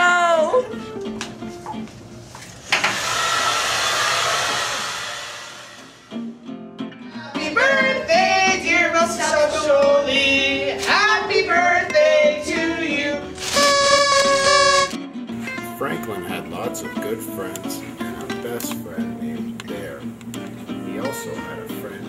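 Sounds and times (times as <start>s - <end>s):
hair dryer blowing: 2.6s - 6.2s
song with singing voice: 7.1s - 14.7s.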